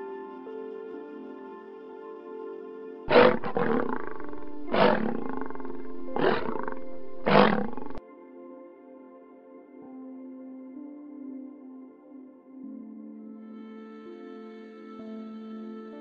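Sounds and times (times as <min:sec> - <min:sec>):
soft ambient music: 0:00.0 - 0:16.0
tiger roaring and growling: 0:03.1 - 0:08.0.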